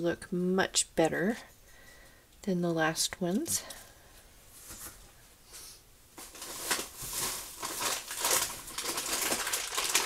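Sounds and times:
plastic packaging crinkling: 6.2 - 10.0.

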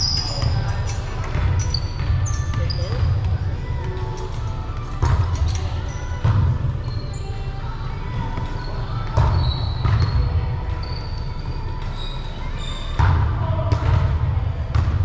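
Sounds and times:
shoe squeaks on court: 0.0 - 3.3, 5.0 - 7.4, 8.4 - 13.0
volleyball hits: 9.1 - 10.4.

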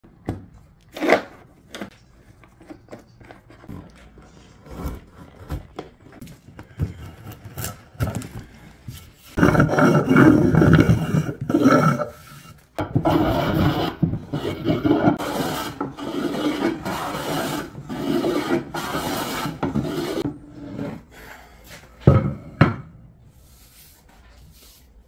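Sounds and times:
hand plane scraping wood: 9.3 - 21.0.

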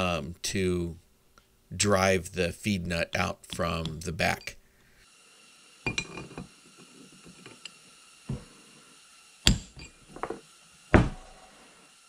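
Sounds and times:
hammer striking metal punch: 9.5 - 9.9.

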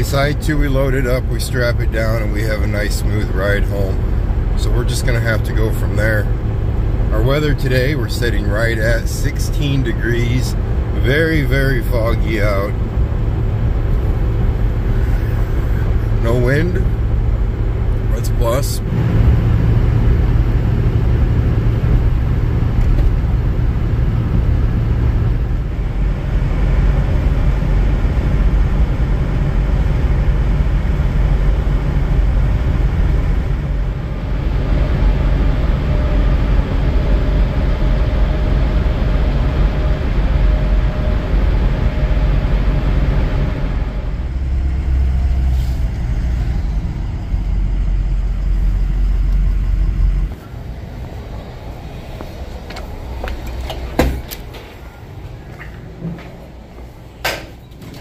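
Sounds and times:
pickup truck engine rumble: 0.0 - 58.0
tyre noise on road: 12.0 - 58.0.

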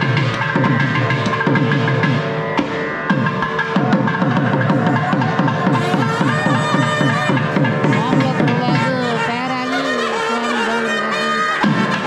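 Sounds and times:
drum beating with sliding pitch: 0.0 - 10.6, 11.5 - 12.0
reedy wind instrument melody: 3.5 - 12.0.

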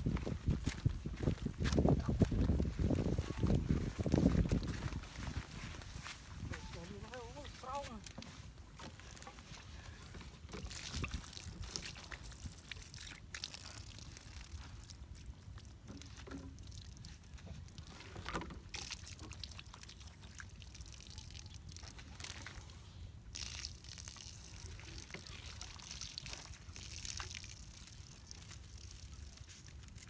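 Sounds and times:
water splashing onto ground: 10.4 - 30.0.

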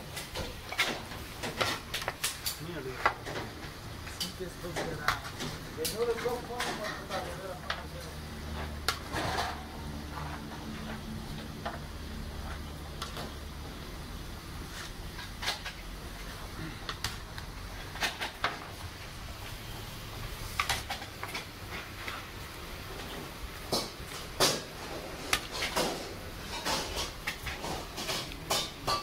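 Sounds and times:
low steady hum: 0.0 - 29.0
steel spoon clinking on platters: 25.5 - 29.0.

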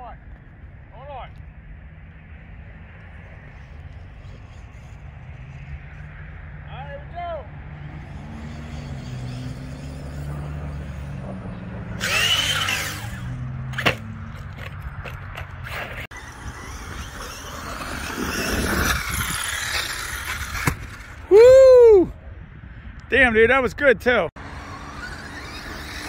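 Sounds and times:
rc truck motor whining: 7.8 - 21.3, 24.4 - 26.0.

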